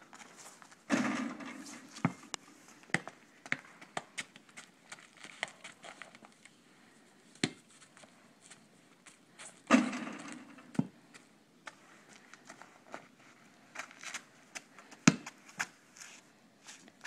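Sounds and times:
basketball hitting hoop: 0:00.9 - 0:02.2, 0:09.7 - 0:10.9
basketball bouncing on asphalt: 0:02.9 - 0:04.4, 0:09.7 - 0:11.0, 0:14.5 - 0:15.4.

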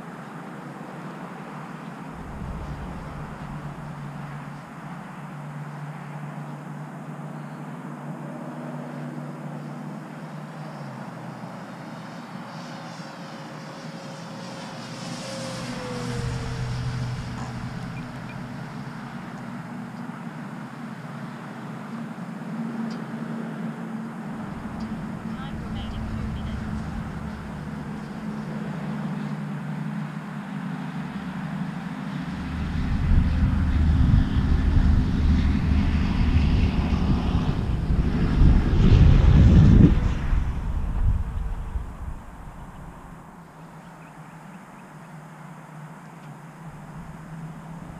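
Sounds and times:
wind buffeting microphone: 0:02.1 - 0:05.2, 0:14.5 - 0:19.9, 0:24.3 - 0:28.9, 0:32.2 - 0:43.4, 0:46.7 - 0:47.9
model plane motor whine: 0:08.9 - 0:20.4, 0:30.4 - 0:41.6.

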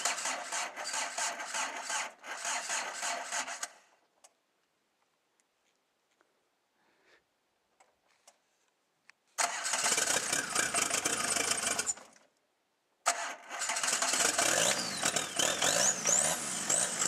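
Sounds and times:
car engine starting and revving: 0:09.4 - 0:12.0, 0:13.1 - 0:17.0.

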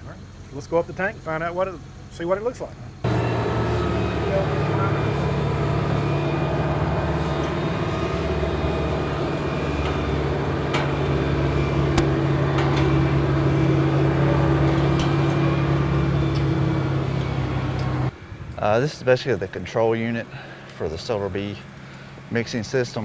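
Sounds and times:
crane engine drone: 0:02.8 - 0:18.2
high engine whine: 0:02.8 - 0:18.6.

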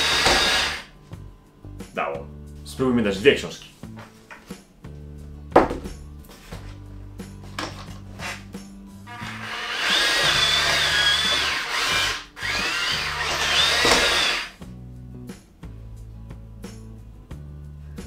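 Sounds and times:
electric motors whining: 0:00.0 - 0:00.9, 0:09.1 - 0:14.6
background music: 0:00.0 - 0:18.0.

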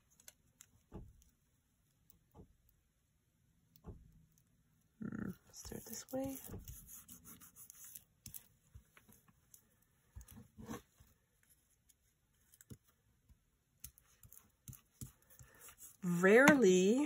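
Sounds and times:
glue stick rubbing paper: 0:05.6 - 0:08.5.

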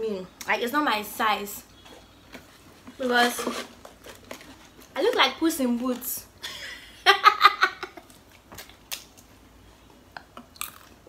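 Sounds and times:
woman laughing: 0:06.4 - 0:08.2.

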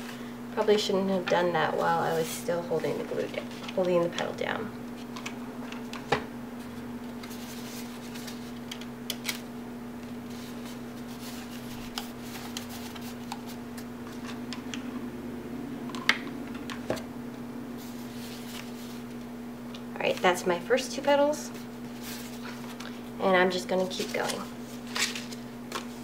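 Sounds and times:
steady low hum: 0:00.0 - 0:26.0
paper rustling and crinkling: 0:06.7 - 0:09.4, 0:10.0 - 0:14.4, 0:21.6 - 0:23.1, 0:23.8 - 0:26.0.

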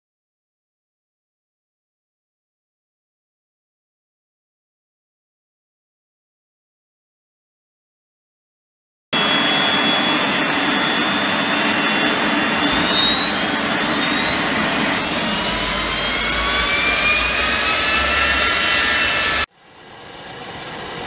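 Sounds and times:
jet engine whine and rush: 0:09.2 - 0:21.0
deep rumble: 0:11.1 - 0:19.5.

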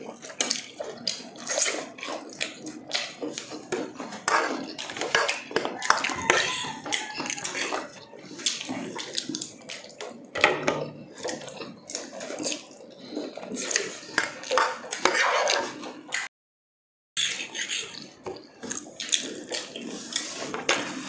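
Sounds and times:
chewing crispy food: 0:00.0 - 0:16.2, 0:17.2 - 0:21.0
cutlery scraping containers: 0:01.4 - 0:09.3, 0:12.3 - 0:16.3, 0:17.2 - 0:18.8, 0:19.6 - 0:21.0
wet mouth sounds: 0:04.6 - 0:10.2, 0:17.2 - 0:20.4.

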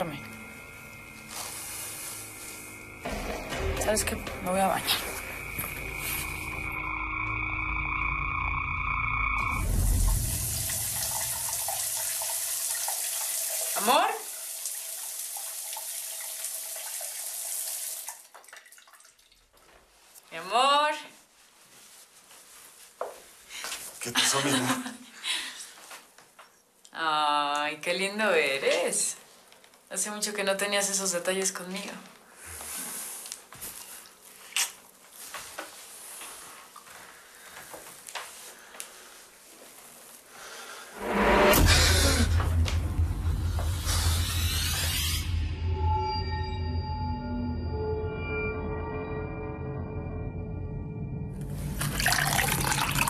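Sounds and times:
shower water spraying: 0:00.4 - 0:03.1, 0:09.5 - 0:18.4
soft footsteps: 0:21.2 - 0:24.0, 0:32.6 - 0:40.3.

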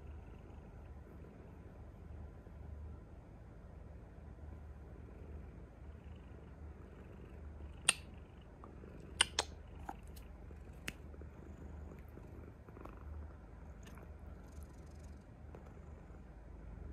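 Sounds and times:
cat purring: 0:00.0 - 0:02.6, 0:04.5 - 0:16.9
sharp clicks: 0:09.2 - 0:09.5.

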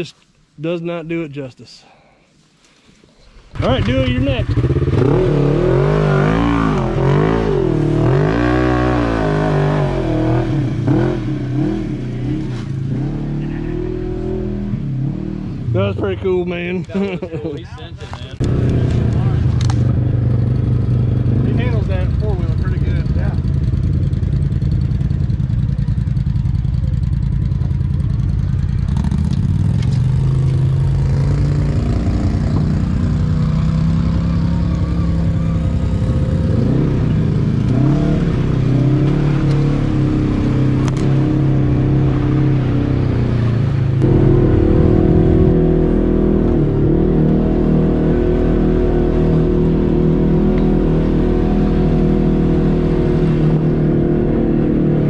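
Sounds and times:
quad bike engine under load: 0:03.6 - 0:11.8, 0:18.1 - 0:47.4.

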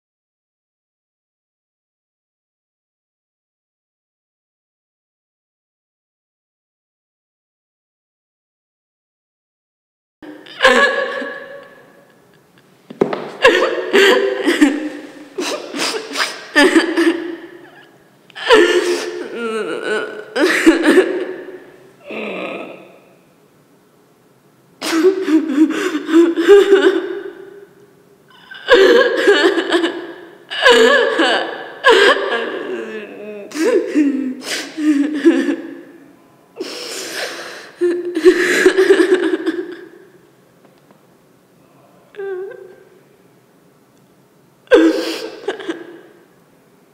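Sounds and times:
woman giggling: 0:10.3 - 0:12.4, 0:13.1 - 0:21.6, 0:24.8 - 0:27.4, 0:28.4 - 0:35.9, 0:37.8 - 0:40.0, 0:44.7 - 0:46.1
woman sobbing: 0:10.3 - 0:12.4, 0:13.4 - 0:22.9, 0:24.8 - 0:27.7, 0:28.3 - 0:40.2, 0:42.1 - 0:43.0, 0:44.7 - 0:46.2
sharp gasping breath: 0:36.6 - 0:37.8.

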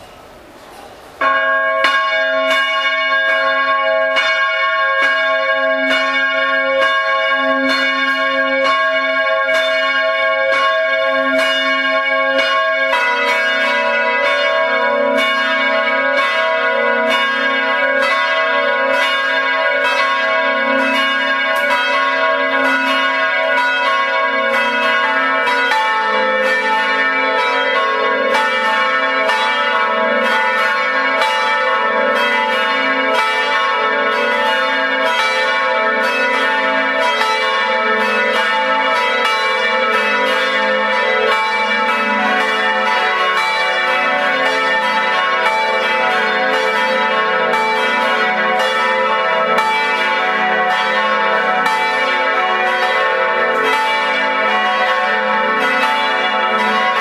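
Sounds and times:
church bells pealing: 0:00.9 - 0:57.0.

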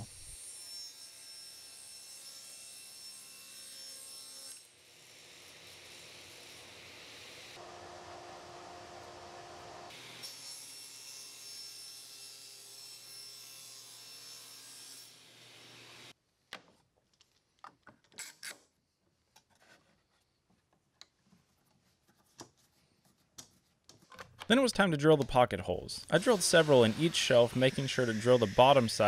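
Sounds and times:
table saw cutting wood: 0:00.0 - 0:16.1, 0:26.0 - 0:29.0.

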